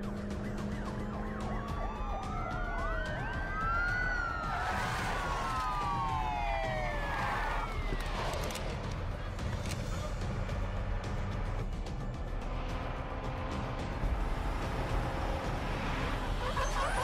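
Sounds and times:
police sirens wailing: 0:00.0 - 0:12.0, 0:12.6 - 0:17.0.

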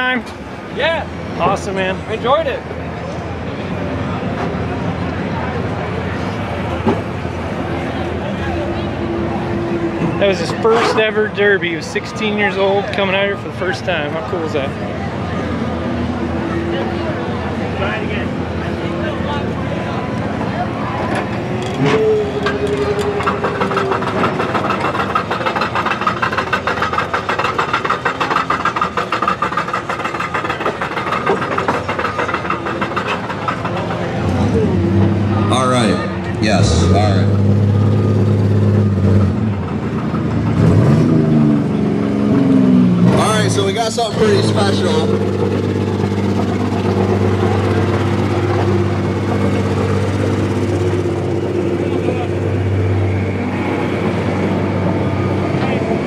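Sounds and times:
car engine idling: 0:13.4 - 0:56.0.

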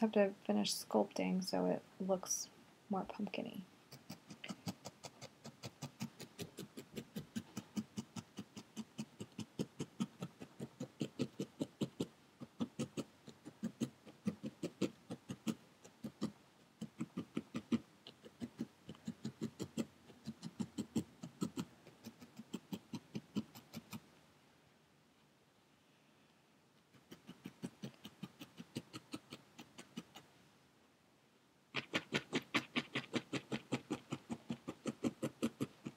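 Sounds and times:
needle poking into foam pad: 0:03.9 - 0:24.0, 0:31.8 - 0:35.9.

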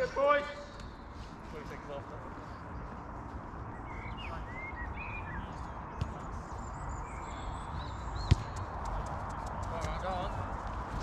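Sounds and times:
bird chirps: 0:03.7 - 0:05.8, 0:06.4 - 0:08.8
football being kicked: 0:08.2 - 0:08.6.

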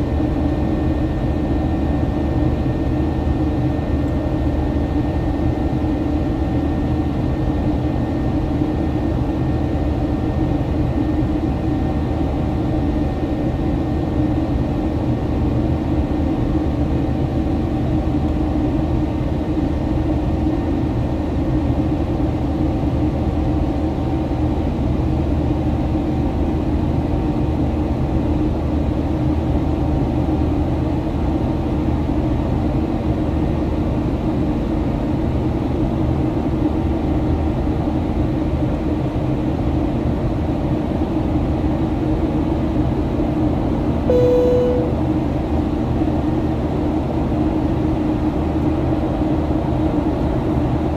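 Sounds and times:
airplane cabin engine drone: 0:00.0 - 0:50.9
faint held tones: 0:44.1 - 0:45.0
low hum: 0:44.1 - 0:45.0.

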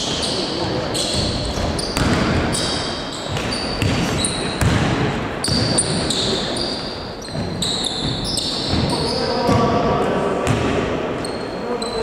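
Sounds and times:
sneakers squeaking on court: 0:00.0 - 0:09.8, 0:10.4 - 0:12.0
basketball bouncing: 0:01.1 - 0:06.4, 0:07.3 - 0:09.8, 0:10.4 - 0:10.8.

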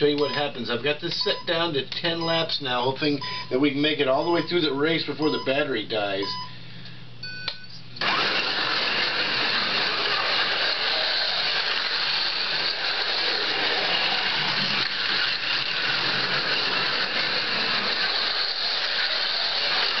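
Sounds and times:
high whir of slot car motors: 0:08.0 - 0:20.0
cars rattling on plastic track: 0:09.6 - 0:20.0.

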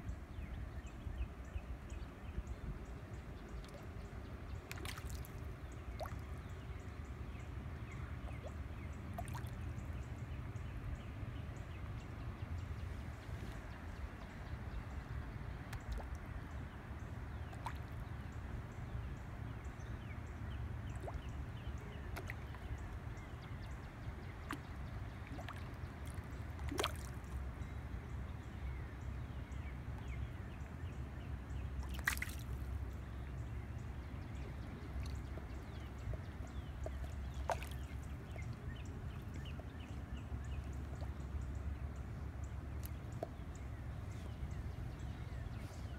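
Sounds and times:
water drips and splashes: 0:04.6 - 0:06.4, 0:08.4 - 0:09.6, 0:15.7 - 0:16.3, 0:17.4 - 0:18.0, 0:22.1 - 0:23.0, 0:24.4 - 0:27.4, 0:31.8 - 0:32.7, 0:34.8 - 0:39.6.

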